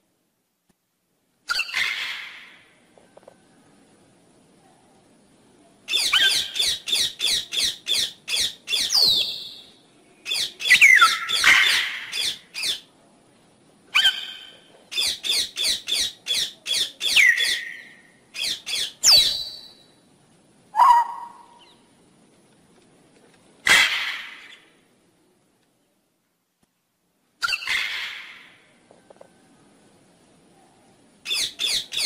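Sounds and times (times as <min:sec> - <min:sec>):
parrot squawking: 0:01.5 - 0:02.6, 0:05.9 - 0:09.0, 0:10.3 - 0:12.8, 0:20.8 - 0:21.5, 0:27.4 - 0:28.5.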